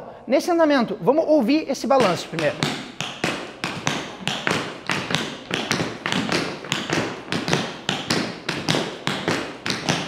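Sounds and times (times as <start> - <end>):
tap shoes striking the floor: 2.0 - 10.0.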